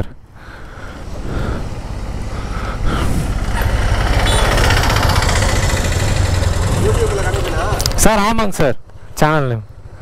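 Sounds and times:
motorcycle engine accelerating: 0.9s - 8.0s.

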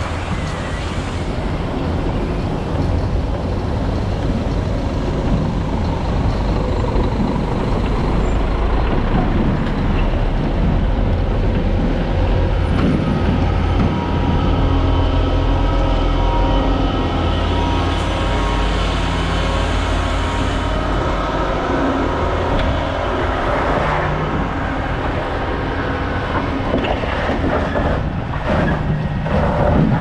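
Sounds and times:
truck engine running: 3.1s - 26.7s.

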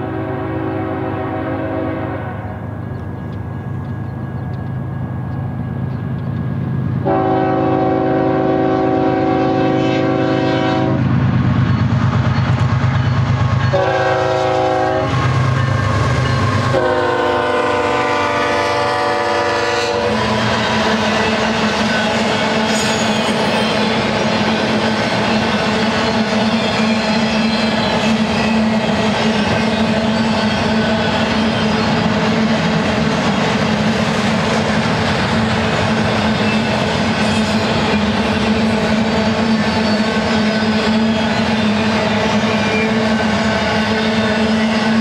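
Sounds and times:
locomotive air horn: 0.0s - 2.6s, 7.0s - 11.0s, 13.7s - 15.4s, 16.5s - 21.0s
train wheels clattering: 11.4s - 45.0s.

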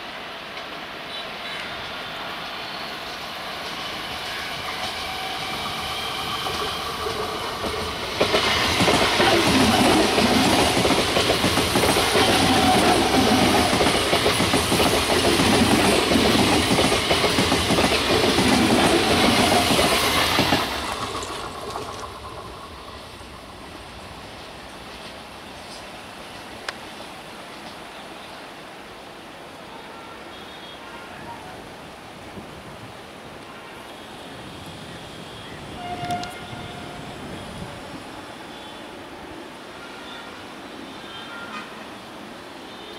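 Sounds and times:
electric train passing: 0.0s - 30.3s, 31.0s - 42.9s
train wheels clattering on rails: 3.3s - 26.8s.

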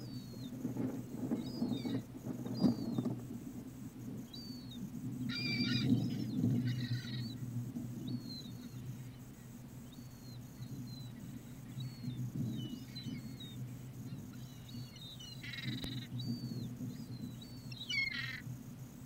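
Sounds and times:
steady low hum: 0.0s - 19.0s
gulls calling: 4.0s - 18.8s
gull squawk: 17.9s - 18.4s.

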